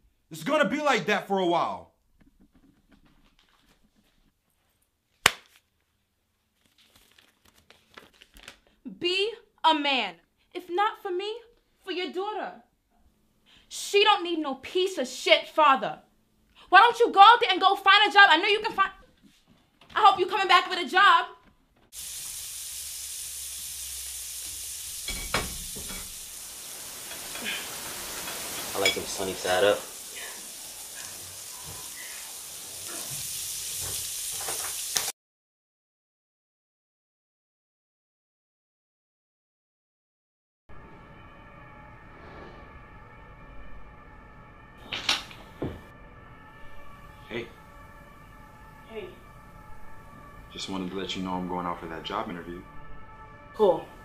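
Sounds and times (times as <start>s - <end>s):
hand slap: 5.2s - 5.6s
eggs sizzling in frying pan: 21.9s - 35.1s.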